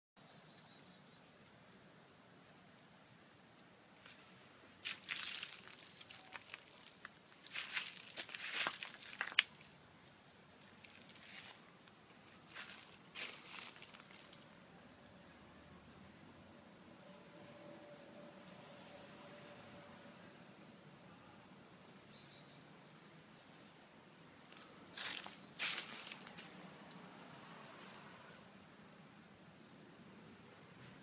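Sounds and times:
bird chip calls: 0:00.3 - 0:01.4, 0:05.8 - 0:07.0, 0:13.4 - 0:13.7
rustling: 0:04.1 - 0:09.7, 0:10.6 - 0:11.6, 0:12.3 - 0:14.4, 0:24.5 - 0:26.6.

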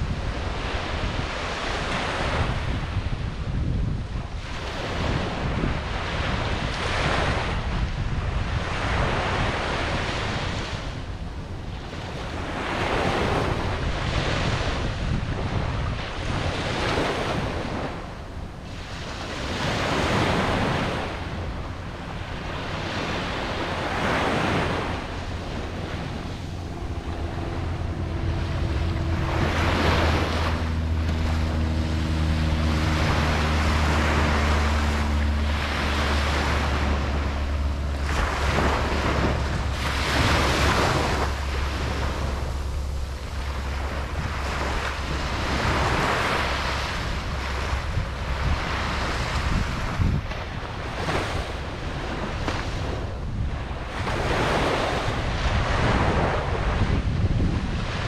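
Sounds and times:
faint low droning hum: 0:00.0 - 0:58.0
ocean waves breaking: 0:00.0 - 0:58.0
wind rumbling on microphone: 0:00.0 - 0:58.0.

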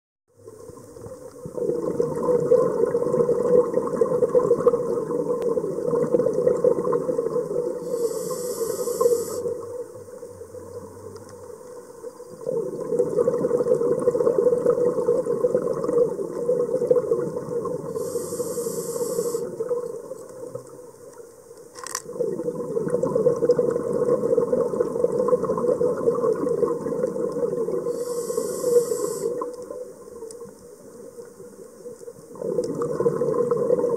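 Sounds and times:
underwater exhalation bubbles: 0:01.4 - 0:07.8, 0:12.4 - 0:18.1, 0:22.1 - 0:28.0, 0:32.3 - 0:33.9
regulator inhalation hiss: 0:07.8 - 0:09.6, 0:17.9 - 0:19.6, 0:27.9 - 0:29.5
sharp click: 0:21.7 - 0:22.0.

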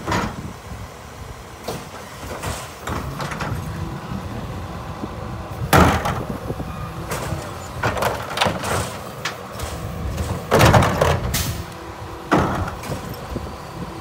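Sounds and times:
garbage truck idling: 0:00.0 - 0:14.0
cart rattling bangs: 0:05.7 - 0:06.4, 0:07.1 - 0:11.6, 0:12.3 - 0:13.1
garbage cart banging: 0:05.7 - 0:06.4, 0:07.1 - 0:11.6, 0:12.3 - 0:13.2.

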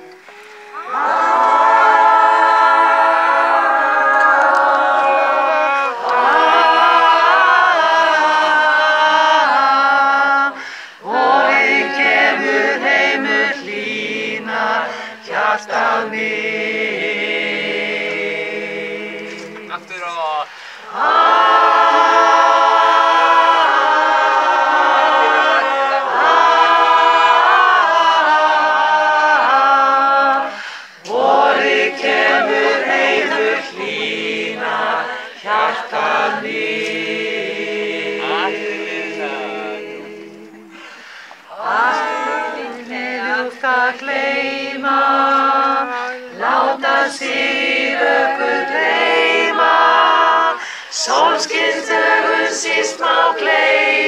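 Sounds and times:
choir singing a cappella: 0:00.0 - 0:54.0.

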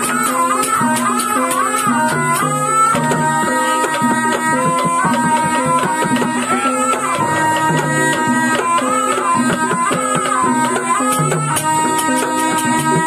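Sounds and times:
gamelan percussion: 0:00.0 - 0:13.0
hand drum strokes: 0:00.0 - 0:13.0
shawm melody: 0:00.0 - 0:13.0.

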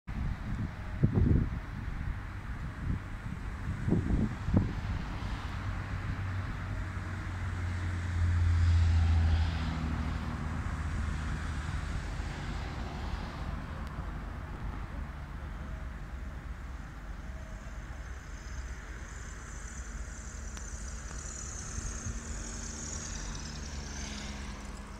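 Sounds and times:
street traffic: 0:00.1 - 0:24.9
jet engines roaring: 0:03.2 - 0:24.9.

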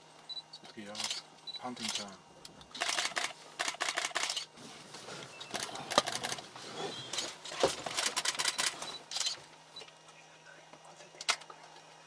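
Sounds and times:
camera shutters clicking: 0:01.0 - 0:01.2, 0:02.7 - 0:04.5, 0:05.5 - 0:06.4, 0:07.8 - 0:09.4.

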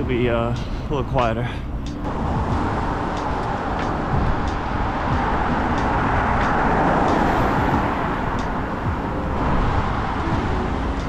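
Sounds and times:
road traffic rush: 0:00.0 - 0:11.0
vehicle passing: 0:00.0 - 0:11.0.

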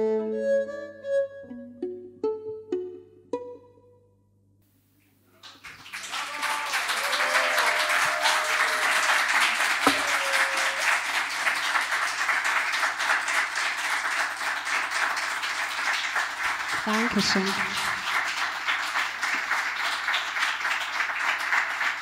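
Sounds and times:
audience applauding: 0:05.4 - 0:22.0.

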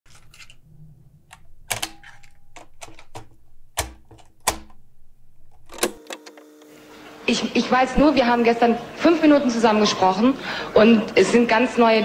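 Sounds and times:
sharp mechanical clacks: 0:01.3 - 0:04.8.

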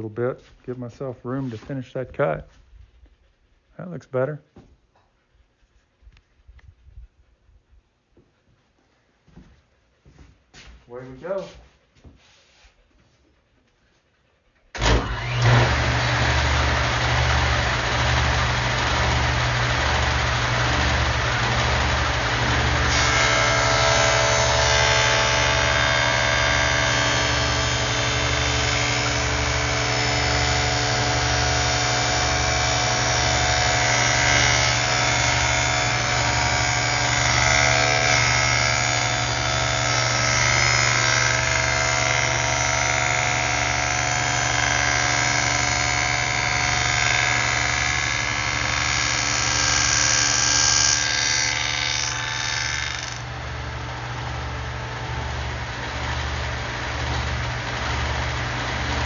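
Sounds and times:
table saw cutting wood: 0:14.8 - 0:59.0
table saw running unloaded: 0:14.8 - 0:59.0.

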